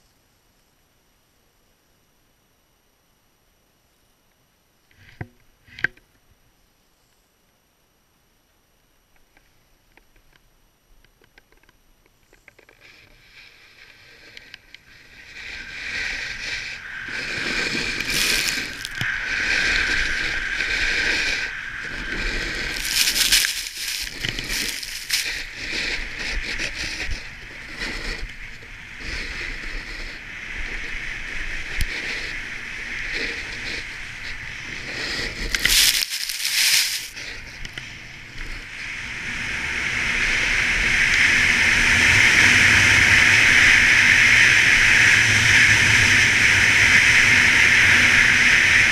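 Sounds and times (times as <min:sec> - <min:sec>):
snowboard scraping snow: 0:12.8 - 0:38.8.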